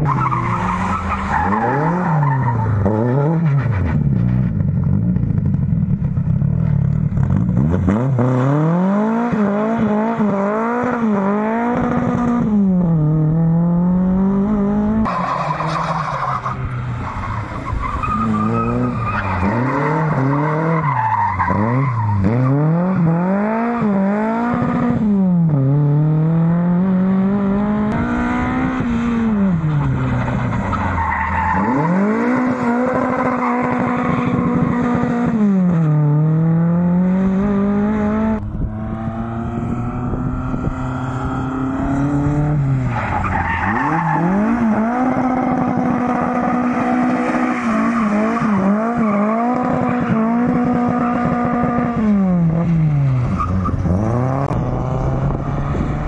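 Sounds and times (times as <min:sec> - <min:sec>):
car engine revving: 0:00.0 - 0:56.0
tyres squealing on concrete: 0:15.1 - 0:22.3.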